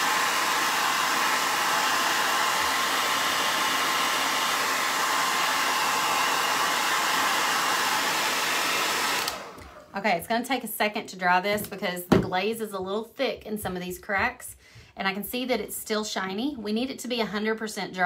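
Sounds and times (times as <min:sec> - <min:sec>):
hair dryer air rushing: 0:00.0 - 0:09.9.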